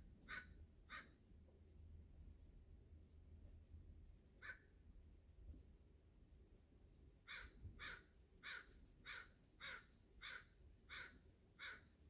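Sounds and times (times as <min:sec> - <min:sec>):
crow cawing: 0:00.3 - 0:01.1, 0:07.3 - 0:11.9.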